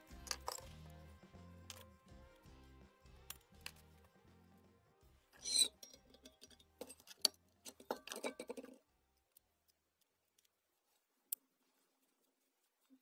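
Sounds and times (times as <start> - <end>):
hands handling lamp parts: 0.0 - 0.7, 5.4 - 13.0.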